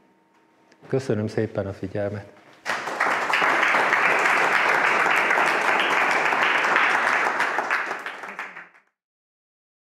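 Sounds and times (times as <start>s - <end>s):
audience applauding: 2.6s - 8.9s.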